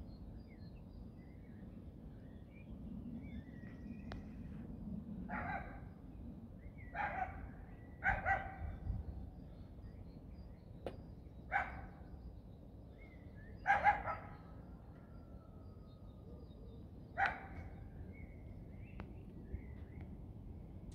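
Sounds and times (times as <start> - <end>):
dog barking: 5.3 - 5.8, 7.0 - 8.6, 11.5 - 11.9, 13.7 - 14.4, 17.2 - 17.7
faint high bird calls: 6.6 - 20.1.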